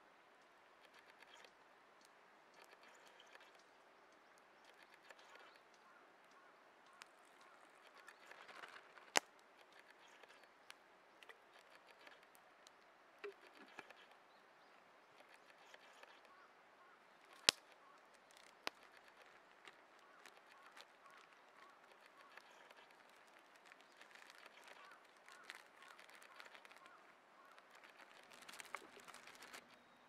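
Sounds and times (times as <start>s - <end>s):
faint clicks: 0.4s - 29.8s
sharp clicks: 0.8s - 14.2s, 17.2s - 29.8s
plastic bag rustling: 22.9s - 29.7s.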